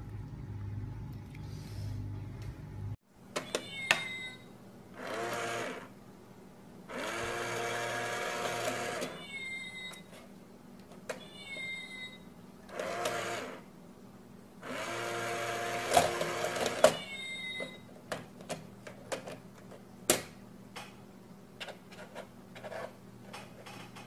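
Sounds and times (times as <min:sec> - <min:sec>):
toy meow: 0:03.4 - 0:04.5, 0:09.1 - 0:10.0, 0:11.2 - 0:12.2, 0:16.8 - 0:17.8
toy mechanism whirring: 0:05.0 - 0:05.9, 0:06.9 - 0:09.2, 0:12.7 - 0:13.6.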